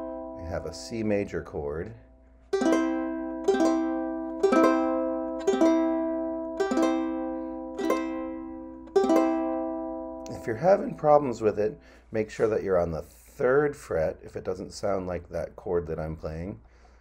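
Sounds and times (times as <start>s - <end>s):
ukulele strums: 2.3s - 11.6s.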